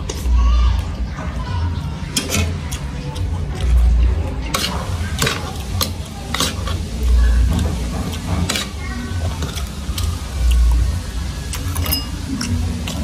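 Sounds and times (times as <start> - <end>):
cutlery scraping ceramic plate: 4.5 - 5.5.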